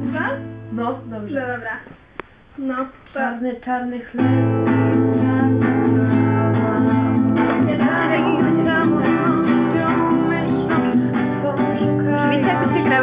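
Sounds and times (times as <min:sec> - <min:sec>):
acoustic guitar strummed: 0:00.0 - 0:01.6, 0:04.2 - 0:13.0
person singing: 0:04.2 - 0:13.0.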